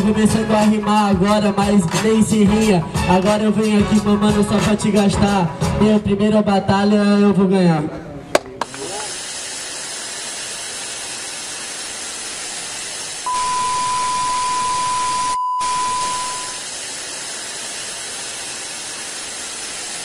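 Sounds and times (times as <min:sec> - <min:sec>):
television static hiss: 0:08.6 - 0:20.0
steady test-tone beep: 0:13.3 - 0:16.6.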